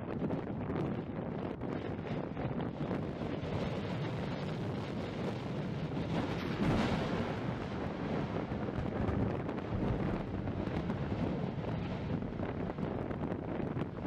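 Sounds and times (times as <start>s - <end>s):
volcanic blast: 0.0s - 14.0s
wind buffeting microphone: 0.0s - 14.0s
roar of gas and lava spatter: 3.3s - 14.0s
crackles: 6.0s - 14.0s.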